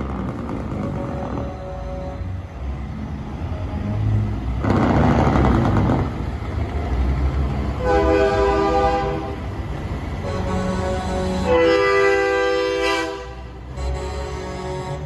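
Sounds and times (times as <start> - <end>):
diesel engine rumble: 0.0 - 15.0
truck air horn chord: 10.2 - 15.0.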